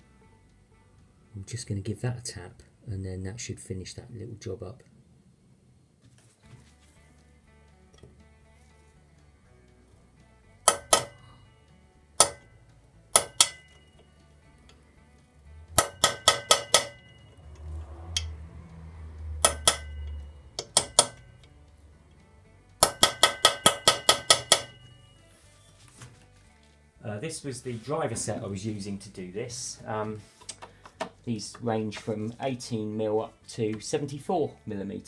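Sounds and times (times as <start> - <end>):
hammer striking metal: 10.7 - 11.4, 12.2 - 12.5, 13.1 - 14.0, 15.7 - 17.4, 19.4 - 21.4, 22.8 - 24.9.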